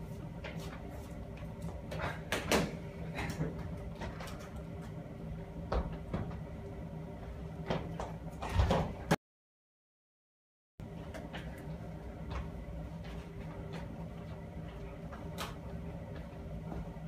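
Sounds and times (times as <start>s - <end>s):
steady low hum: 0.0s - 9.2s, 10.8s - 17.0s.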